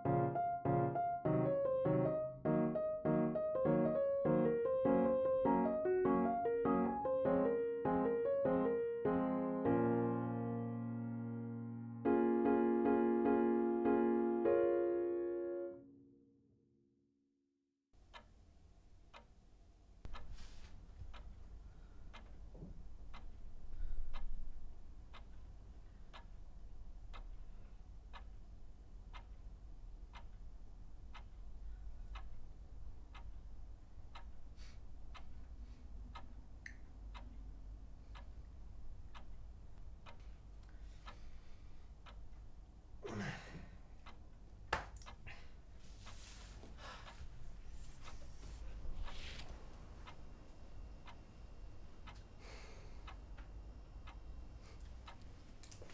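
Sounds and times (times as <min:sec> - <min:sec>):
wall clock ticking: 0:00.0 - 0:09.2, 0:18.0 - 0:42.9, 0:43.8 - 0:55.9
low room hum: 0:18.0 - 0:55.9
heavy breathy sigh: 0:43.0 - 0:43.8.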